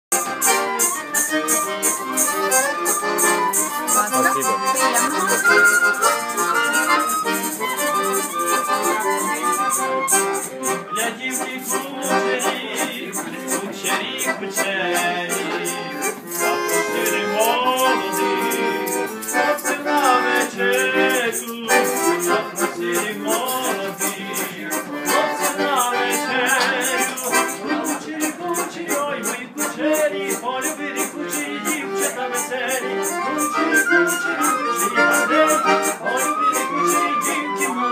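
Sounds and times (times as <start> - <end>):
second melodic part: 0.1 - 14.0
accordion playing lively tune: 0.1 - 37.9
rattle shaken in a beat: 0.2 - 37.9.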